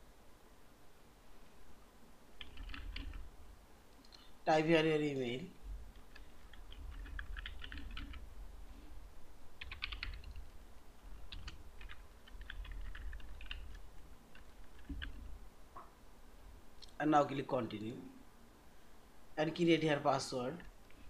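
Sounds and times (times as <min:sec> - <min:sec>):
keyboard typing: 0:02.4 - 0:03.3, 0:05.9 - 0:08.3, 0:09.6 - 0:10.5, 0:11.2 - 0:15.4.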